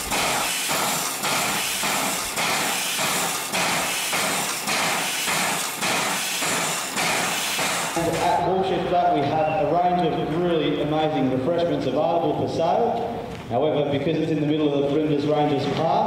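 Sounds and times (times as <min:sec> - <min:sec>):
air pump stroke knock: 0:00.0 - 0:08.4
steam air pump hissing: 0:00.0 - 0:08.5.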